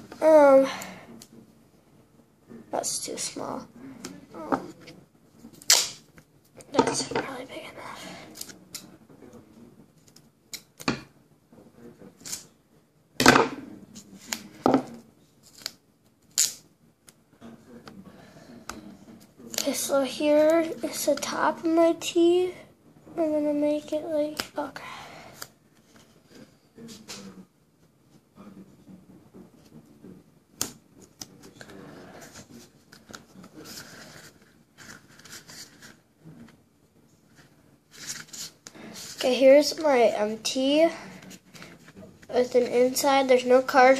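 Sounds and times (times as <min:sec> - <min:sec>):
tape ripping: 0:15.5 - 0:16.6.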